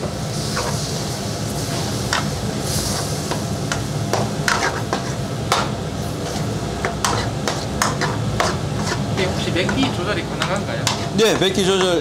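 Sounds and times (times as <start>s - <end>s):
light sizzle: 0.0s - 12.0s
spatula scraping frying pan: 1.7s - 5.3s, 6.1s - 10.0s.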